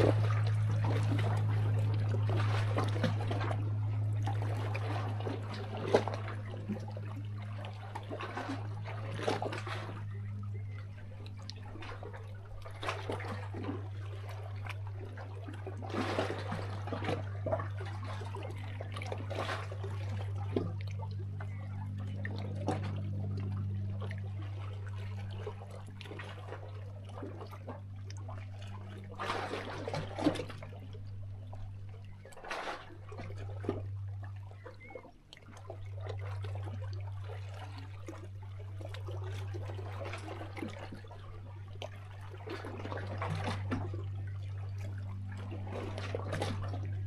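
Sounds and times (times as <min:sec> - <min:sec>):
steady low hum: 0:00.0 - 0:47.0
water gurgling and trickling: 0:00.0 - 0:47.0
sea waves splashing against rocks: 0:29.2 - 0:30.6.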